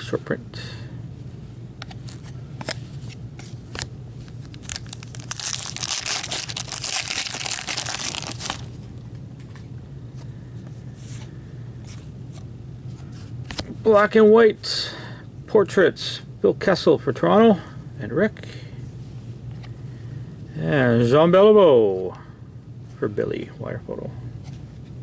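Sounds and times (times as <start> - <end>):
wrapper tearing and crinkling: 3.8 - 8.7.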